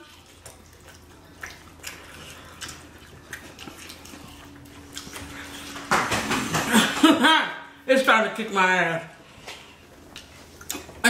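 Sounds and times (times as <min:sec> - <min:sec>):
chewing and lip smacking: 0:00.0 - 0:06.4, 0:09.5 - 0:11.0
faint low hum: 0:00.0 - 0:11.0.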